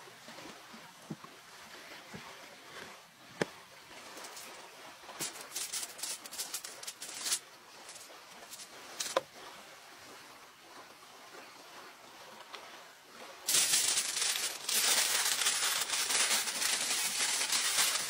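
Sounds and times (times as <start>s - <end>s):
aluminium foil crinkling: 5.2s - 9.2s, 13.5s - 18.0s.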